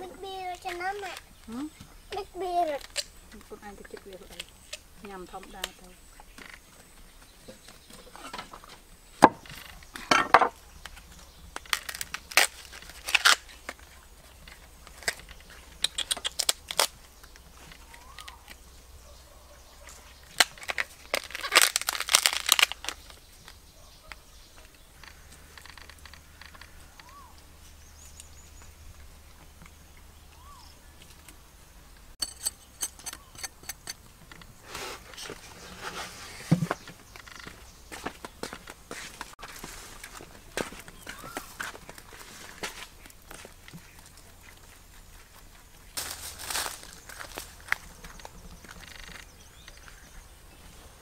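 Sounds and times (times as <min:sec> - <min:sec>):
food crunching and crackling: 0:10.8 - 0:18.6, 0:20.0 - 0:23.6, 0:39.2 - 0:50.2.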